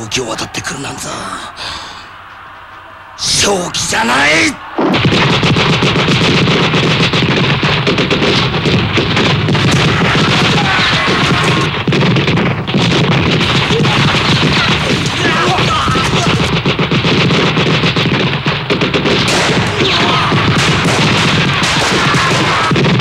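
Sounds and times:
booms: 0.0s - 23.0s
rifle fire: 4.9s - 23.0s.

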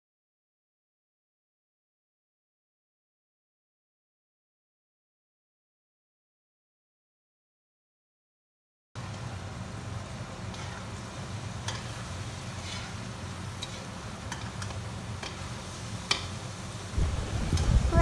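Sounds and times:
faint hiss: 9.1s - 18.0s
metal spatula scraping a pan: 10.4s - 15.4s
low hum: 16.9s - 18.0s.

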